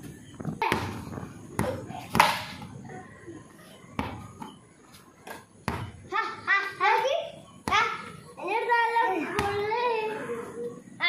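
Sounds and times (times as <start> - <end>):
child's voice: 6.1 - 10.8.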